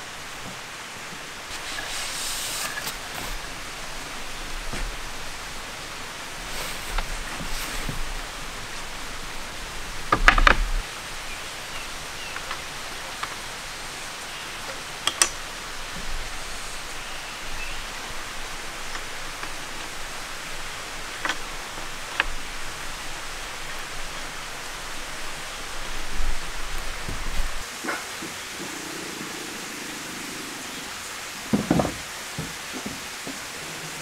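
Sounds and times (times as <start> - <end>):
steady outdoor hiss: 0.0 - 34.0
wooden table parts knocking: 31.5 - 33.0.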